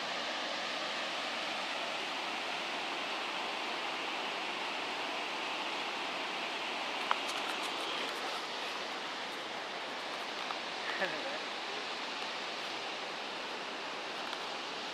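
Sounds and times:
waterfall rushing into pool: 0.0s - 14.9s.

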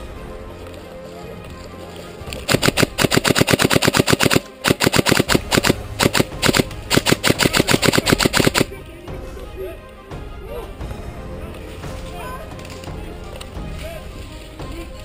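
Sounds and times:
airsoft rifle firing bursts: 2.4s - 8.8s.

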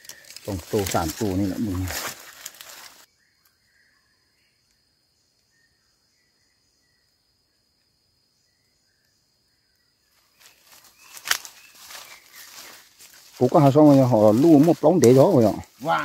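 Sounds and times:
insect drone: 0.0s - 16.0s
short bird chirps: 8.5s - 12.9s.

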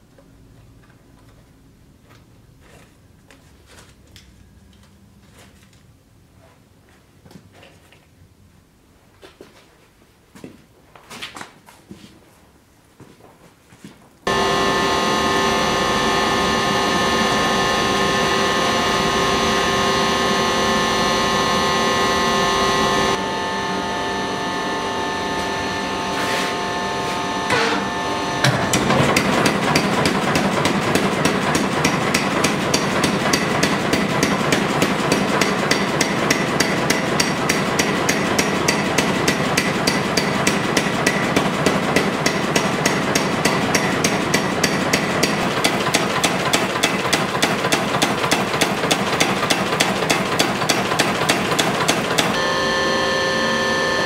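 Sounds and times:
motor hum: 14.3s - 33.9s, 51.6s - 54.0s
power hammer striking steel: 27.4s - 54.0s.

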